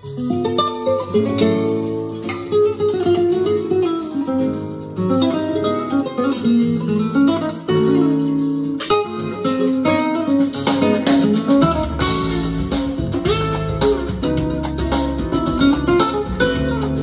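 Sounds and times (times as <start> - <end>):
flamenco guitar music: 0.0 - 17.0.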